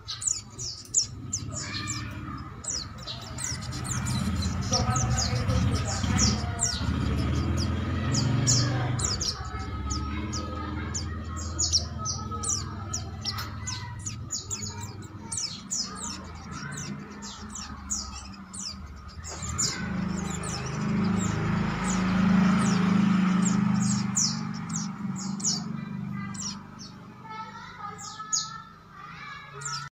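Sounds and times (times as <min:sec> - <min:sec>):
birds chirping high notes: 0:00.0 - 0:29.9.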